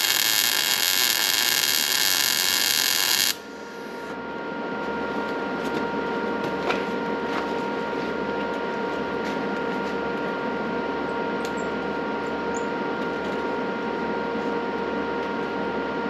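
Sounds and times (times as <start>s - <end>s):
welding arc crackling and hissing: 0.0s - 3.4s
steady hum: 0.0s - 5.6s.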